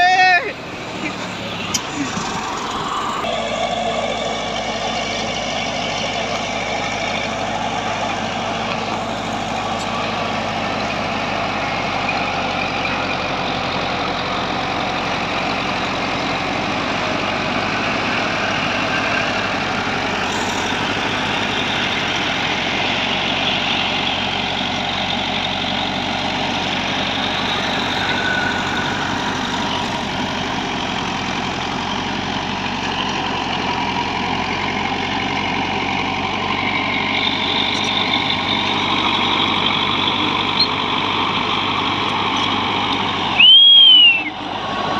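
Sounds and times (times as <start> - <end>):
bulldozer diesel engine running: 0.0 - 44.9
blade pushing soil: 15.2 - 32.3.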